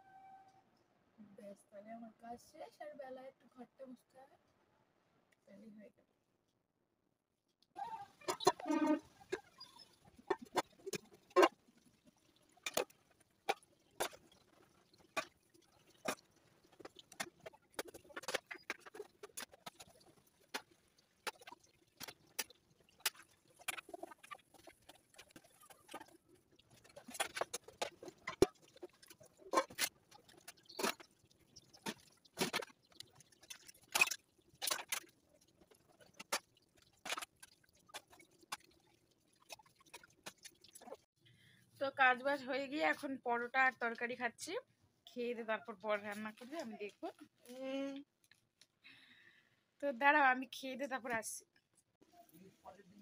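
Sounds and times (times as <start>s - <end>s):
water splashing: 7.8s - 41.1s.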